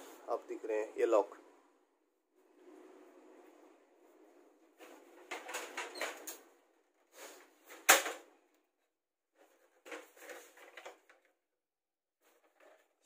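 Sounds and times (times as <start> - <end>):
copier parts rattling: 4.8 - 6.4.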